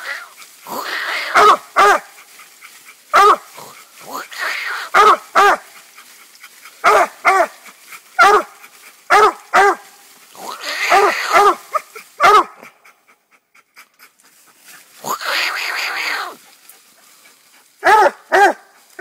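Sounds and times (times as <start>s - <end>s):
dog barking: 1.2s - 2.1s, 3.1s - 3.5s, 4.8s - 5.7s, 6.8s - 7.6s, 8.2s - 9.9s, 10.7s - 12.7s, 17.8s - 18.7s.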